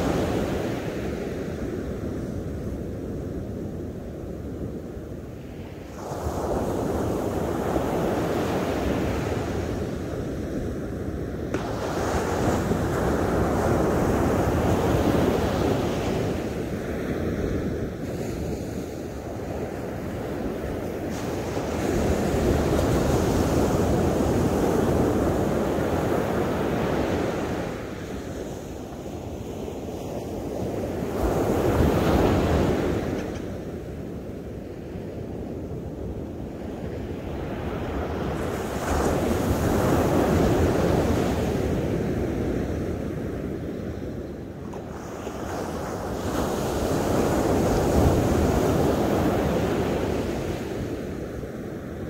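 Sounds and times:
surf breaking on beach: 11.5s - 17.1s.

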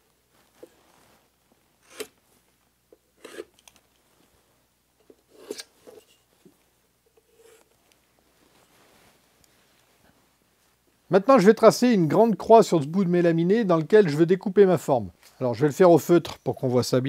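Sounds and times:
ruler handling: 1.8s - 2.2s, 3.2s - 3.7s, 5.0s - 6.3s.

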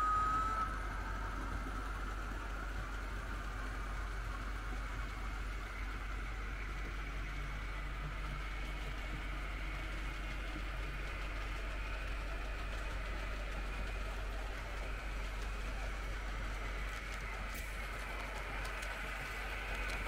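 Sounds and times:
thin high whine: 0.0s - 0.8s
model trains on metal track: 0.0s - 20.0s.

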